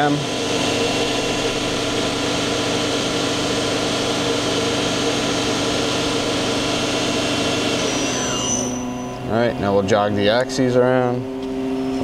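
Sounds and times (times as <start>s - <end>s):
machine whir with constant tones: 0.0s - 12.0s.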